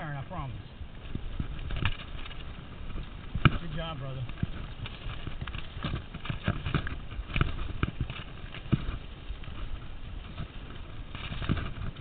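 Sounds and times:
low rumble of riding: 0.0 - 12.0.

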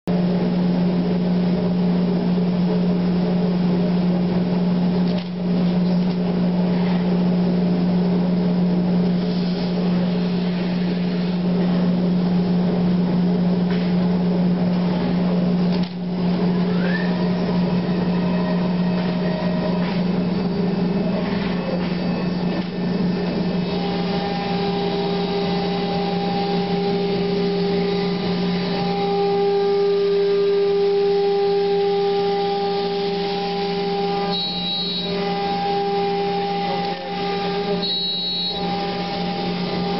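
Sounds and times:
cnc router drone: 0.1 - 39.9
higher steady tones: 16.1 - 39.9.

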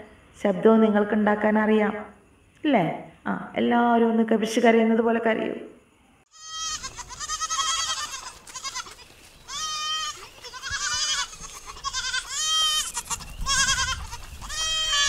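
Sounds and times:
goats bleating: 6.4 - 15.0.

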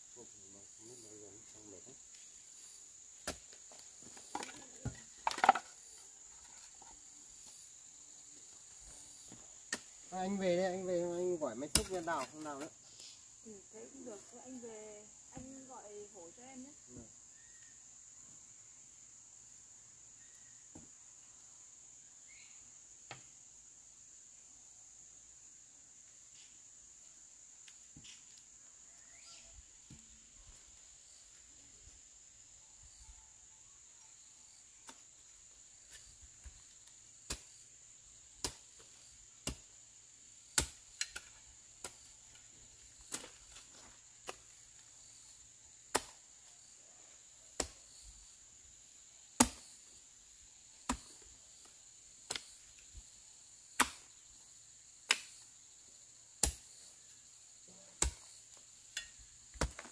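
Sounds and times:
high insect buzz: 0.0 - 59.9.

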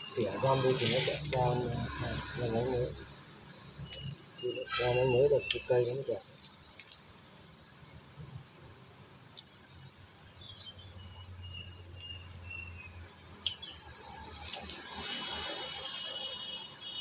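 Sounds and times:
bird chirping: 0.0 - 6.7, 9.6 - 14.0
high insect trill: 0.0 - 17.0.

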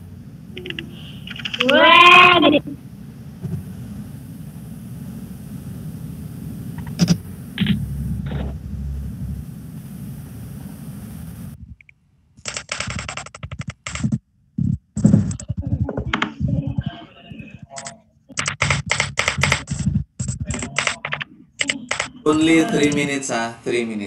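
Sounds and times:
steady low hum: 0.0 - 23.9
computer keyboard typing: 0.6 - 1.8, 12.4 - 14.2, 17.8 - 22.2.

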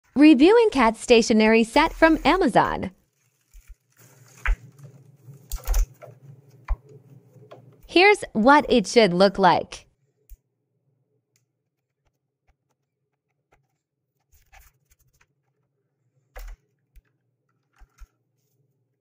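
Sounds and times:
plastic rustling: 1.8 - 6.6
plastic packaging clatter: 3.0 - 6.2
plastic packaging clicks: 3.3 - 6.2.

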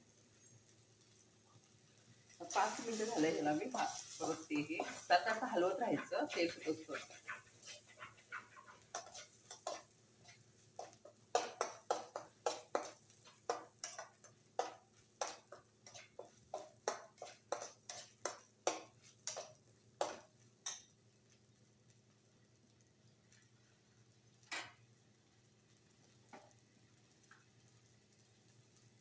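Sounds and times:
paste frying in oil: 0.0 - 29.0
metal spatula scraping pan: 2.6 - 20.8.

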